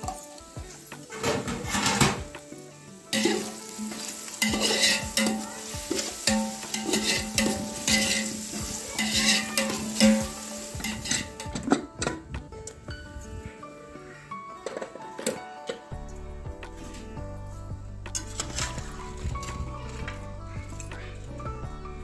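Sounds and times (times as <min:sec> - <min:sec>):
ladle stirring and scraping pot: 0:00.0 - 0:02.2, 0:03.1 - 0:12.2, 0:18.1 - 0:19.7
onions sizzling in hot oil: 0:00.0 - 0:11.7.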